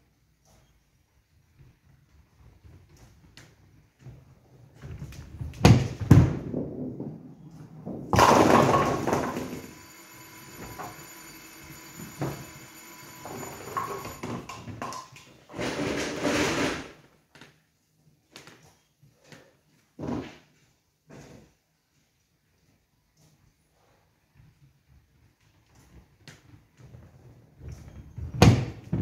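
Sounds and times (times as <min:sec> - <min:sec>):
bowling pins crashing: 0:05.6 - 0:14.8
pinsetter machine running: 0:08.2 - 0:14.6.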